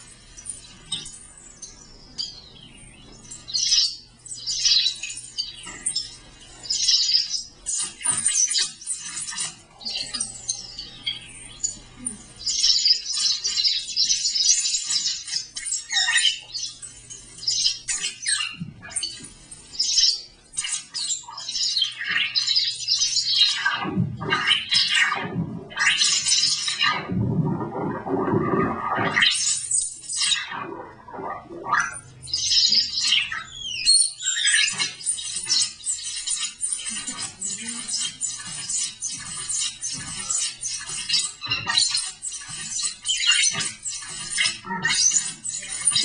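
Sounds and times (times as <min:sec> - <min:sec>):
chirping electronic sound bursts: 0:00.0 - 0:46.0
low steady hum: 0:26.8 - 0:29.2.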